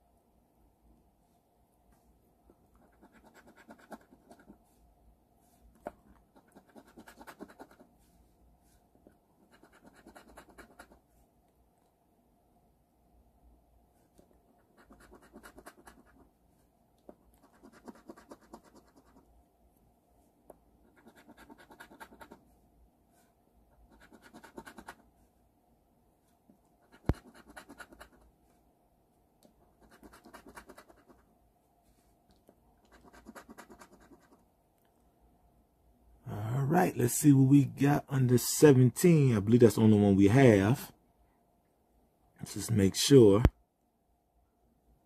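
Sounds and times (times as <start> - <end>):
coin scratching lottery ticket: 2.9 - 4.5, 6.4 - 7.8, 9.4 - 11.0, 14.7 - 16.2, 17.4 - 19.2, 20.9 - 22.4, 23.9 - 25.0, 26.9 - 28.2, 29.8 - 31.2, 32.9 - 34.4.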